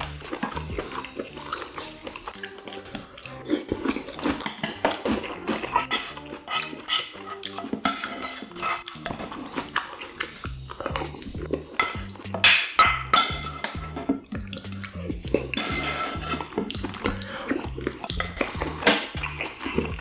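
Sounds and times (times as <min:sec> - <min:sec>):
utensils scraping a frying pan: 0:00.0 - 0:20.0.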